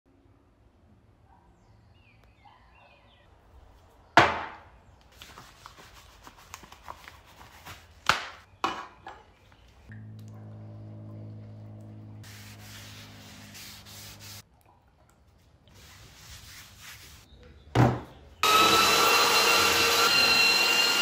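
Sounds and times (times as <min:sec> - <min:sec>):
steady motor hum: 0:09.9 - 0:12.2.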